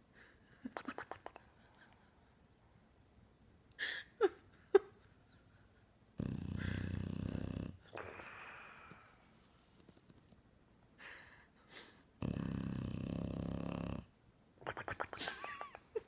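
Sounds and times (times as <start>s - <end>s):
dog snoring: 6.2s - 8.5s, 12.2s - 14.1s.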